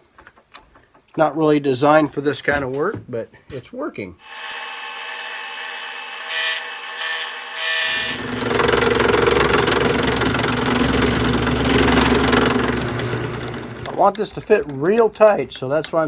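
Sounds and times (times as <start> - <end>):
end mill cutting metal: 4.2 - 14.1
drill press motor hum: 6.2 - 14.0.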